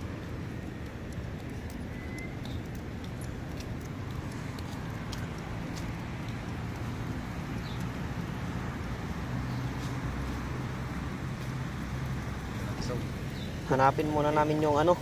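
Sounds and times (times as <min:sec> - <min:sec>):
road traffic noise: 0:00.0 - 0:15.0
faint ticks: 0:00.2 - 0:06.9.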